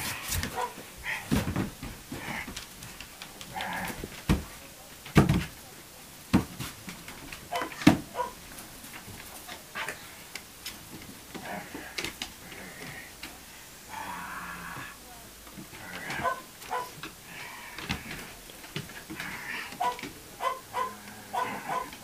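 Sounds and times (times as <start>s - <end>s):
dog vocalizing: 16.0s - 17.4s, 19.2s - 22.0s.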